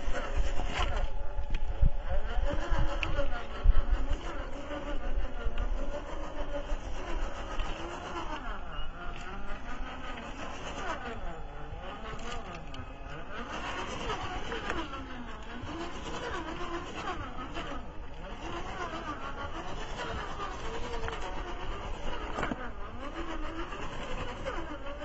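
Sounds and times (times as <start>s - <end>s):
electric motor whining: 0.0s - 25.0s.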